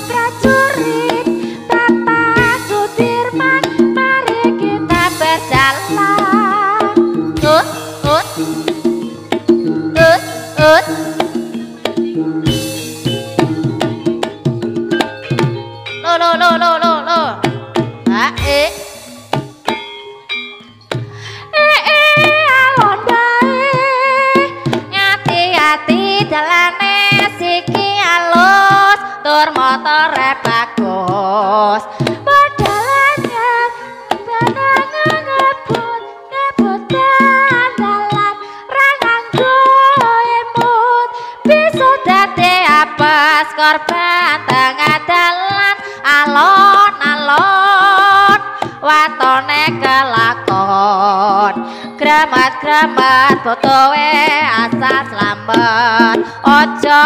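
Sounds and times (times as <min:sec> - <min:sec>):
sharp drum strokes: 0:00.0 - 0:15.6, 0:17.4 - 0:20.0, 0:32.0 - 0:35.9
gamelan tones: 0:00.0 - 0:26.5
ornamented lead melody with vibrato: 0:00.0 - 0:27.6
person singing sliding notes: 0:09.9 - 0:11.8.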